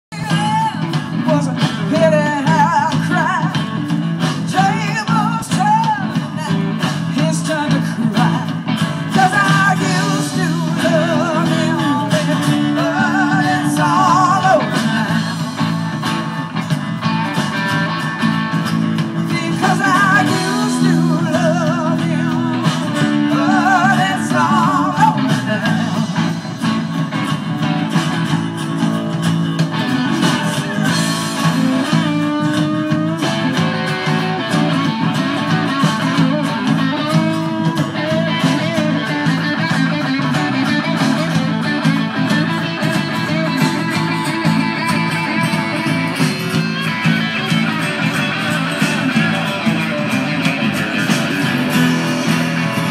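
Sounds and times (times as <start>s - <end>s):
live rock band playing: 0.0s - 52.9s
woman singing with vibrato: 0.1s - 3.6s, 4.5s - 15.5s, 19.2s - 26.3s.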